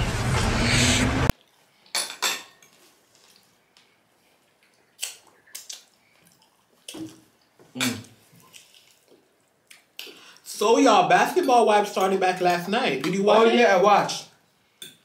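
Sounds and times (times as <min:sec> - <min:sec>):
loud rush of noise: 0:00.0 - 0:01.3
cutlery clinking on plate: 0:01.9 - 0:02.8.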